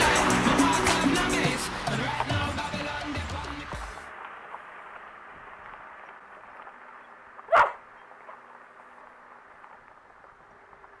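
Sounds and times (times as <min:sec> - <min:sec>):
dog barking: 0:07.4 - 0:08.4.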